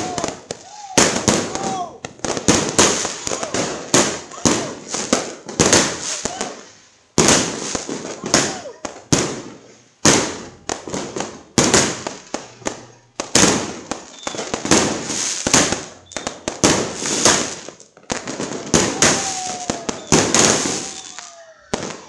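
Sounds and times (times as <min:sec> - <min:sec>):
fireworks banging and crackling: 0:00.0 - 0:22.0
falling firework whistle: 0:14.0 - 0:14.6, 0:15.8 - 0:16.5, 0:18.7 - 0:22.0.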